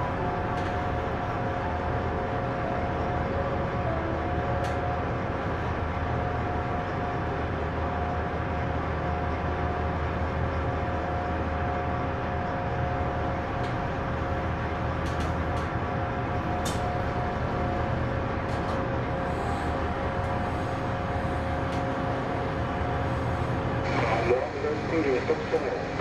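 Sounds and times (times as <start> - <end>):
high engine whine: 0.0 - 26.0.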